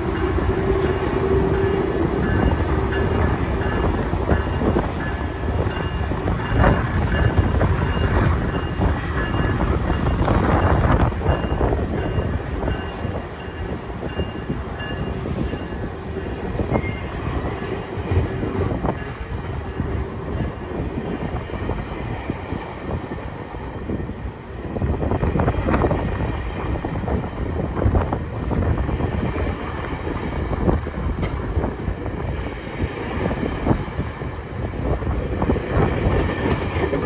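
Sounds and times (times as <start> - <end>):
train wheels rumbling on rails: 0.0 - 37.0
high wheel squeal: 16.7 - 17.9.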